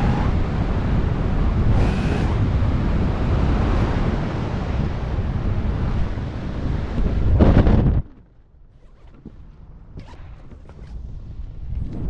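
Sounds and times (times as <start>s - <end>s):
wind rushing over microphone: 0.0s - 8.3s, 10.6s - 12.0s.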